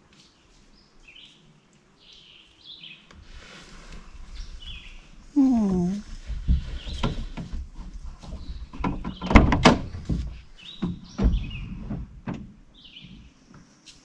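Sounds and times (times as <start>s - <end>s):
knocks and clunks of handling: 6.3s - 13.2s.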